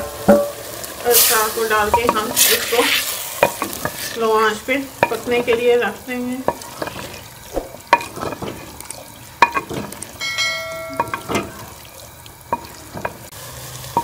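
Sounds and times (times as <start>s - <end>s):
soft cooking sizzle: 0.0s - 14.0s
wooden spoon knocking a clay pot: 1.8s - 4.2s, 4.9s - 8.8s, 9.4s - 11.8s, 12.5s - 13.3s
short bell-like chime: 10.2s - 11.1s.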